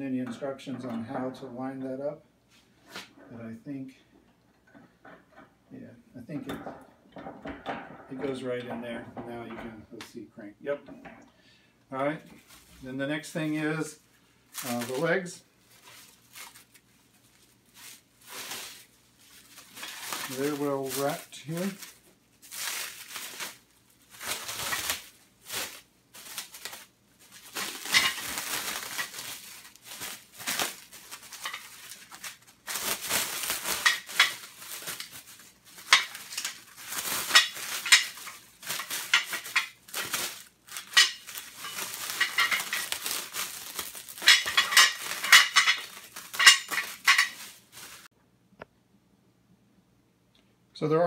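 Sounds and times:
plastic wrap crinkling: 14.5s - 48.1s
metal legs clinking: 44.2s - 47.4s.

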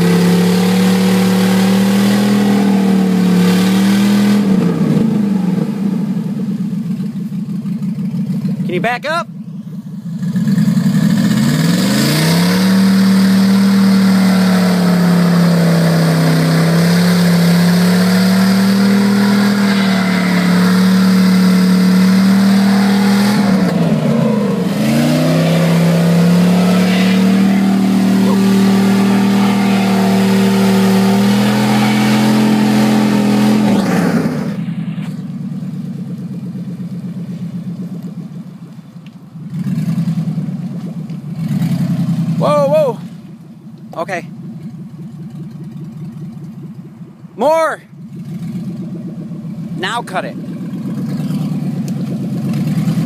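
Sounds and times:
pickup engine revving hard: 0.0s - 6.4s, 10.2s - 34.8s.

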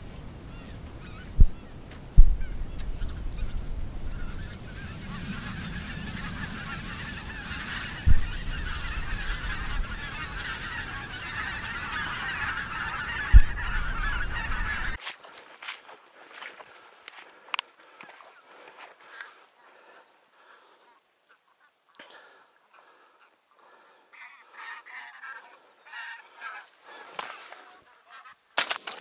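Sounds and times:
geese honking: 0.0s - 29.0s
loud low thumps: 2.2s - 4.2s.

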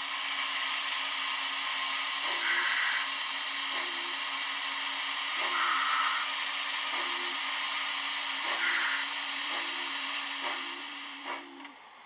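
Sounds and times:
pulse through steam hiss: 0.0s - 11.7s
model steam locomotive hiss: 0.0s - 12.0s.

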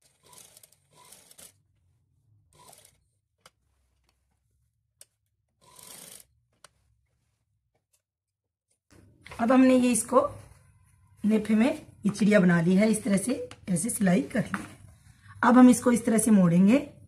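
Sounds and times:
cloth rustling: 0.0s - 8.1s.

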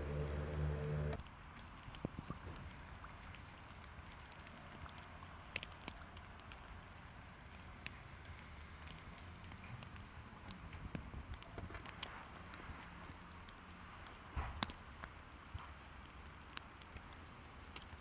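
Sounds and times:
low rumble: 0.0s - 1.2s
light ticks and clicks: 0.0s - 18.0s.

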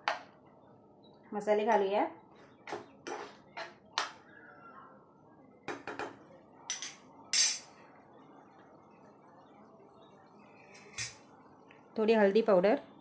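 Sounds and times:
spatula scraping frying pan: 3.0s - 3.7s
kitchen utensils clinking: 6.7s - 7.7s.

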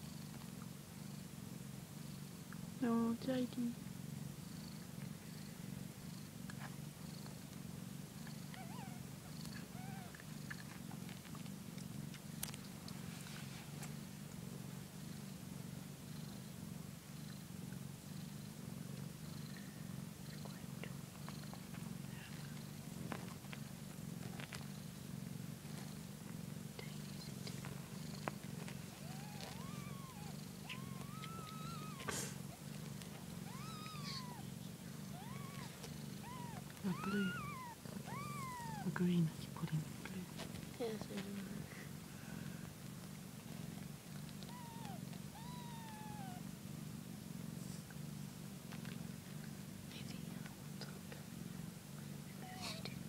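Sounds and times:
cat purring: 0.0s - 53.0s
kittens squeaking: 8.5s - 9.0s, 9.7s - 10.2s, 28.9s - 32.3s, 33.3s - 34.5s, 35.1s - 38.9s, 44.5s - 46.4s.

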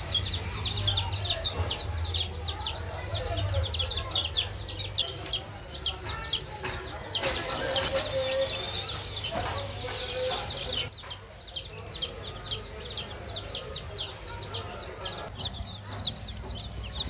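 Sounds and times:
baby chicks peeping: 0.0s - 17.0s.

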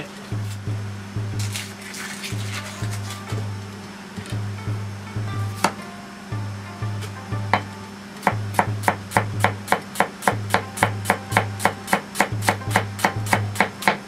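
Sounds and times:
knife chopping on cutting board: 7.5s - 14.0s.

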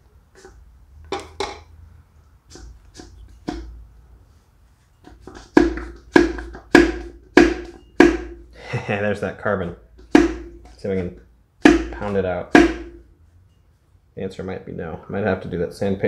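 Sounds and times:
fist knocking on connecting rod: 5.3s - 8.4s, 10.0s - 10.7s, 11.6s - 13.0s.

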